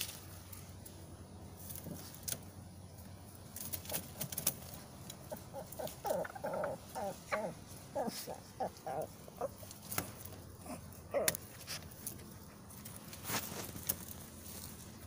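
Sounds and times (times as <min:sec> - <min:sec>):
chickens clucking: 0:03.7 - 0:11.5.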